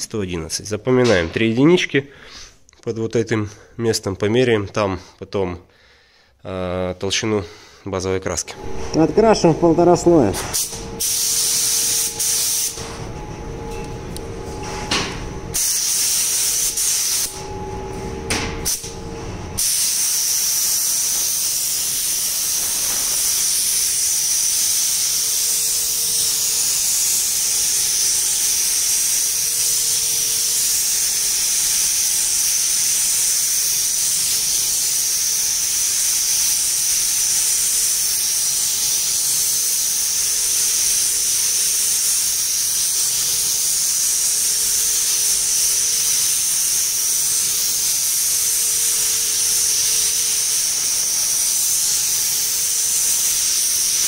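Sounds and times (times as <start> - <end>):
faint hum: 7.4 - 15.6
paint spray gun hissing: 10.3 - 12.8, 15.5 - 17.4, 18.6 - 18.9, 19.6 - 54.0.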